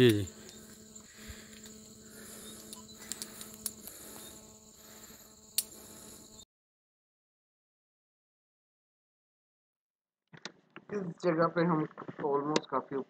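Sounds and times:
insects buzzing: 0.0s - 6.4s
sharp clicks: 2.5s - 4.0s, 5.6s - 5.8s.

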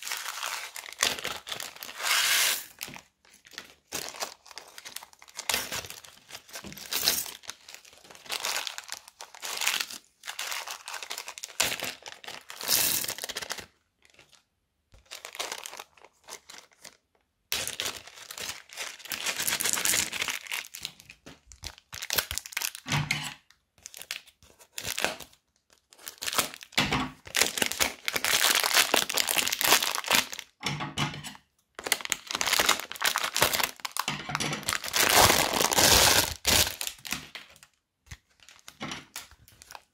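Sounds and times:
plastic zip bags crinkling: 0.0s - 14.4s, 15.0s - 30.6s, 31.8s - 39.9s.

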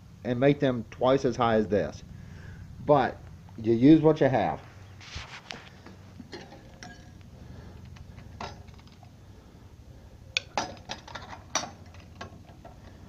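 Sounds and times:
metal coffee pot clinking: 6.2s - 7.2s, 8.2s - 9.0s, 10.4s - 12.8s.

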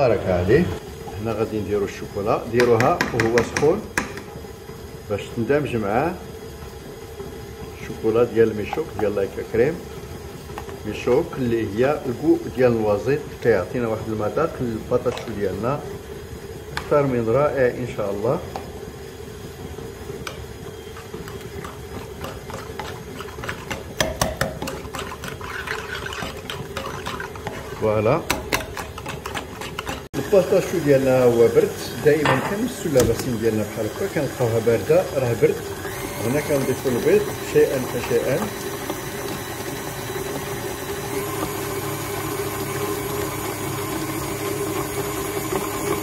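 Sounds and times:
stand mixer beating dough: 0.0s - 46.0s
whisk clicking against bowl: 2.6s - 4.3s, 20.2s - 30.7s.

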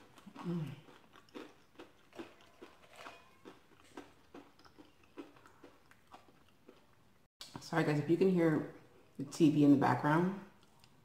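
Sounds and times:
chewing corn chips: 0.0s - 7.1s.

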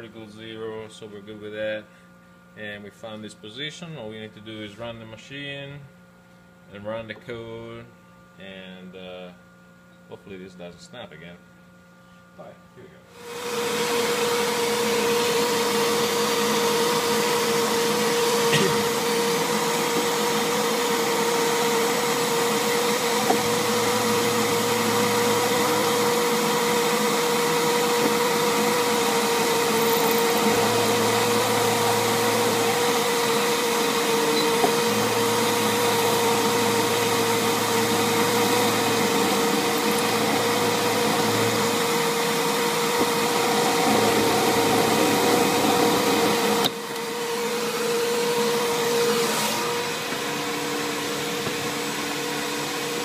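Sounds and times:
shop vacuum running: 12.1s - 53.0s
milling machine whine: 13.2s - 53.0s.

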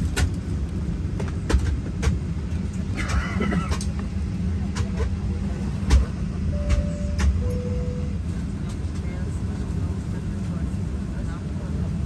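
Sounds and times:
airliner cabin hum: 0.0s - 12.0s.

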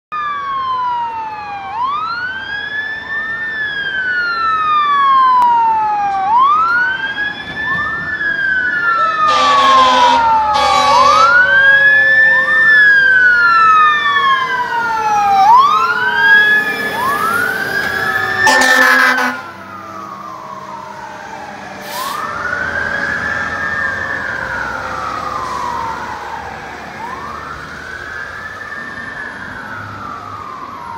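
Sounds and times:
fire engine sirens wailing: 0.1s - 30.9s
truck horn blasts: 9.2s - 11.3s, 18.4s - 19.6s.

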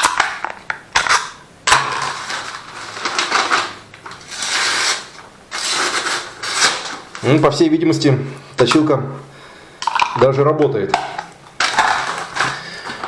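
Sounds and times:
blade scraping through newspaper: 2.1s - 7.0s.

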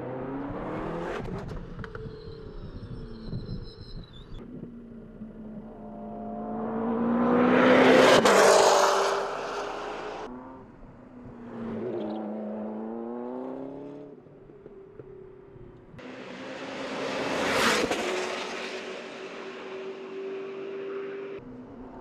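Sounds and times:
race car passing at speed: 5.9s - 10.6s, 16.0s - 21.4s.

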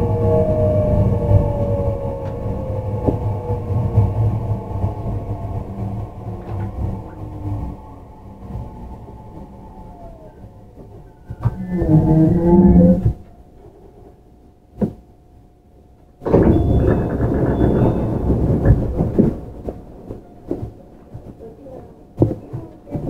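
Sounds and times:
faint train hum: 0.0s - 23.0s
scattered knocks: 16.2s - 21.5s.

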